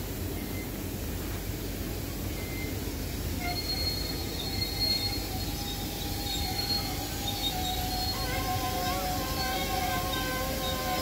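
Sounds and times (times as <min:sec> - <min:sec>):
train wheels squealing on rails: 0:00.2 - 0:11.0.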